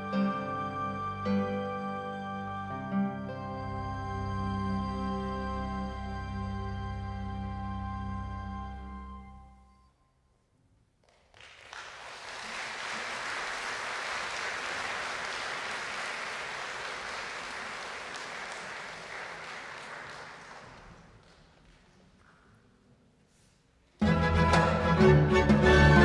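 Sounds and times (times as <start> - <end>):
audience applauding: 11.0 - 21.8.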